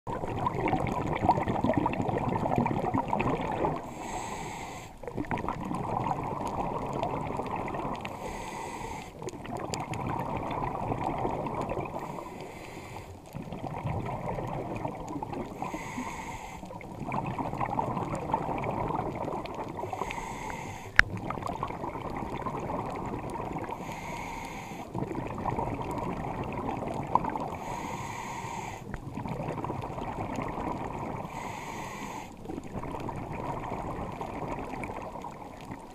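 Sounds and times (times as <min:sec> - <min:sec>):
exhaled air bubbling: 0:00.1 - 0:35.9
regulator inhale hiss: 0:03.8 - 0:05.0, 0:08.1 - 0:09.2, 0:12.0 - 0:13.2, 0:15.6 - 0:16.8, 0:19.8 - 0:21.0, 0:23.7 - 0:25.0, 0:27.5 - 0:29.0, 0:31.2 - 0:32.5.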